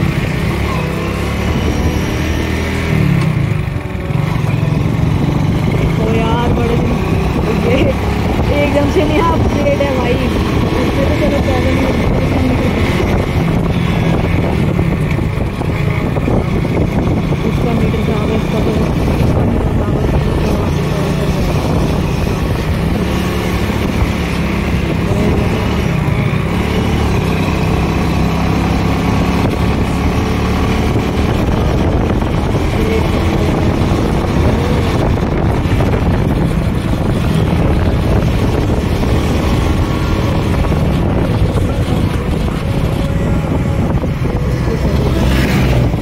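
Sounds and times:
motorcycle engine running: 0.0 - 46.0.

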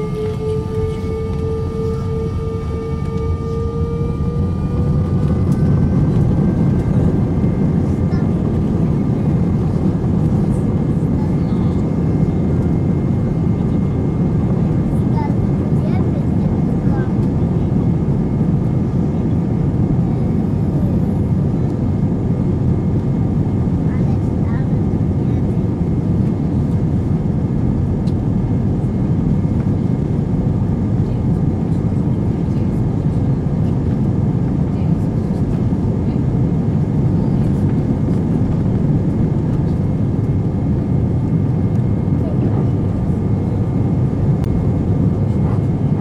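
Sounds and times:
faint steady whine: 0.0 - 16.2
jet engines rumbling in cabin: 0.0 - 46.0.

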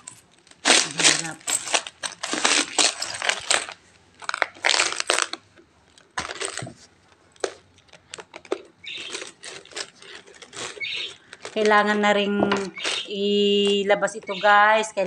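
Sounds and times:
coins rattling in piggy bank: 0.0 - 5.3, 8.9 - 11.8.

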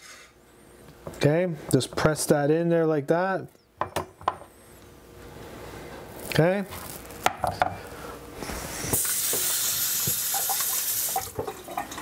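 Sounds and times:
steady hiss: 4.7 - 11.4.

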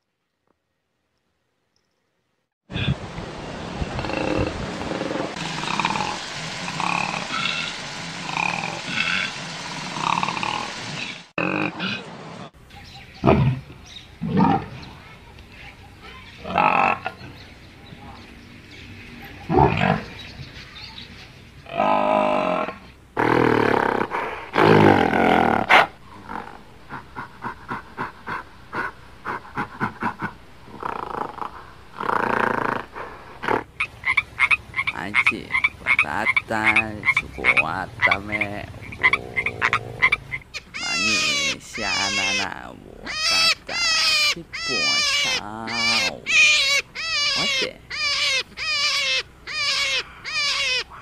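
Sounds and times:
frog croaking chirps: 30.0 - 51.0
water buffalo bellowing: 36.7 - 51.0.

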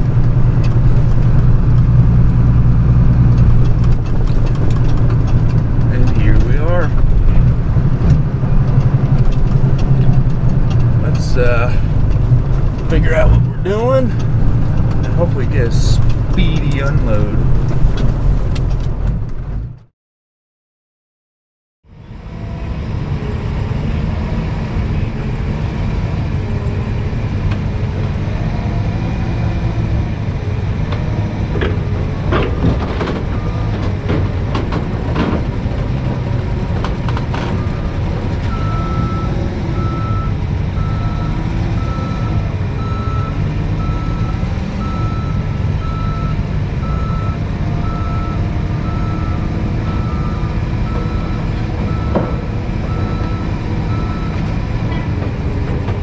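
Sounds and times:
forklift engine running: 0.0 - 19.9, 22.0 - 56.0
back-up alarm beeping: 38.5 - 54.4.

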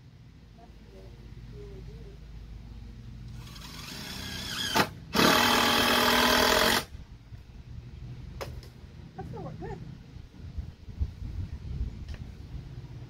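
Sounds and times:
power tool motor running: 3.3 - 6.9.

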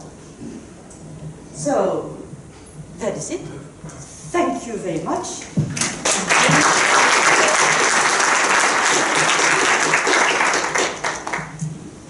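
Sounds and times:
audience applauding: 5.8 - 11.6.

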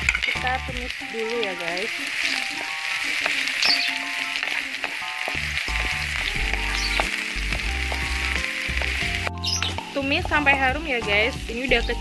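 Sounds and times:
background music with low bass: 0.0 - 1.0, 5.3 - 12.0
onions sizzling in oil: 0.0 - 12.0
spatula stirring and scraping: 0.0 - 12.0.

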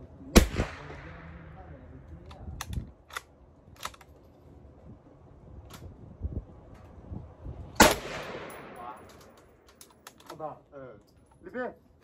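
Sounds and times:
gunshot with echo: 0.4 - 1.4, 7.8 - 9.0.

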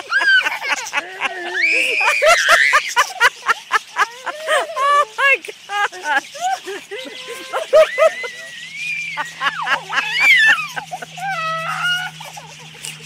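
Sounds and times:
budgerigars chirping and squawking: 0.0 - 13.0
person squealing: 1.1 - 2.9, 4.4 - 12.3.

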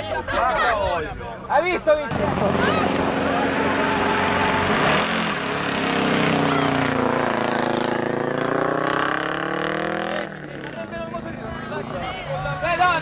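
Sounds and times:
rally car engine accelerating: 2.1 - 12.1.

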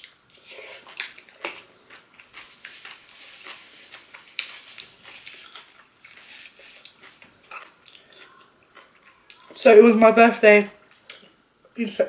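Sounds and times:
close chewing with mouth clicks: 0.0 - 9.5.

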